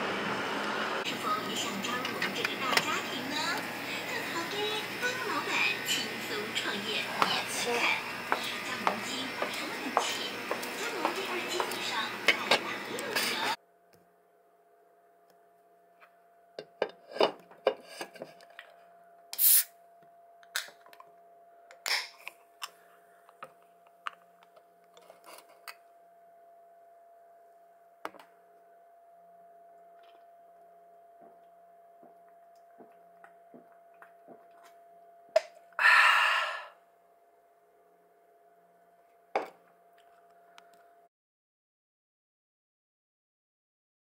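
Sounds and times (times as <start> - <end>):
can hissing: 19.4 - 19.7.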